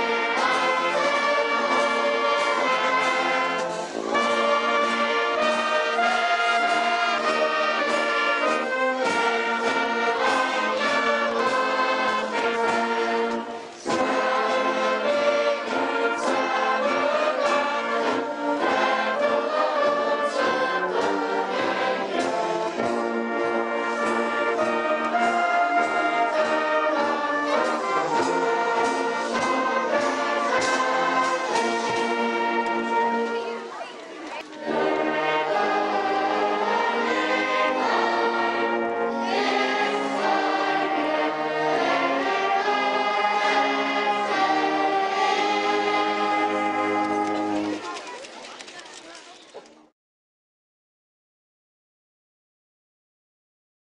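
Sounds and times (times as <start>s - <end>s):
brass band playing: 0.0s - 48.0s.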